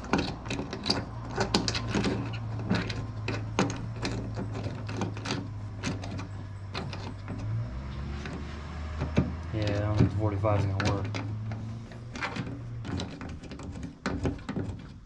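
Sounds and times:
fitting clicking and scraping: 0.0 - 15.0.

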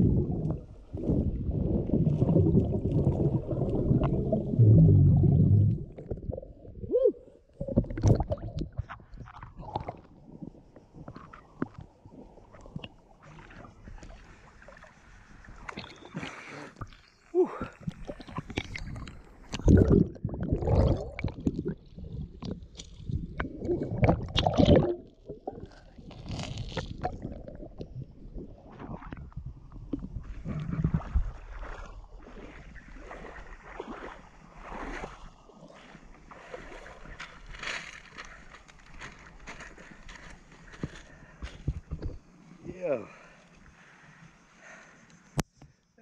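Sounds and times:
seawater sloshing and splashing: 30.2 - 42.6.

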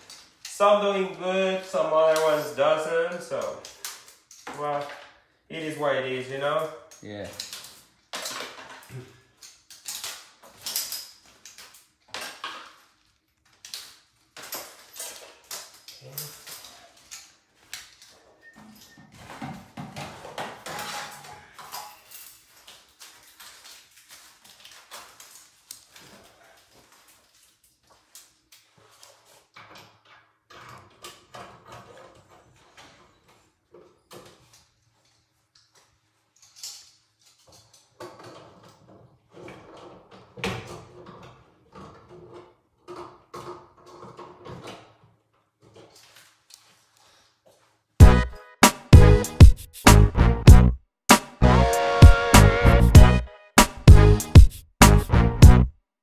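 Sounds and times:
metal parts clinking and rattling: 6.6 - 19.2, 20.5 - 26.0, 34.4 - 40.2.

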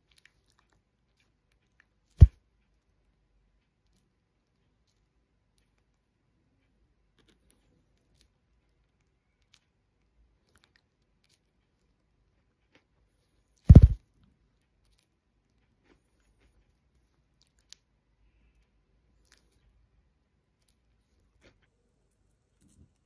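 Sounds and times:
bird beak nibbling lettuce: 7.1 - 14.0
loud low thump: 13.7 - 14.0.

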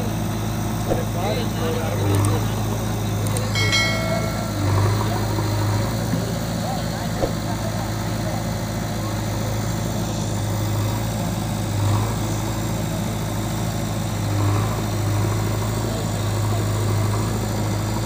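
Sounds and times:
diesel engines running: 0.0 - 18.0
engines revving: 0.0 - 18.0.

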